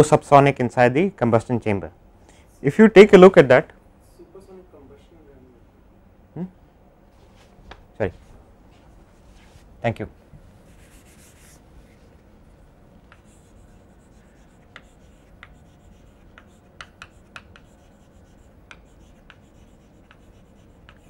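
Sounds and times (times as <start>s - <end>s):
faint room hum: 0.0s - 21.0s
chalk writing on chalkboard: 10.6s - 12.0s, 13.1s - 21.0s.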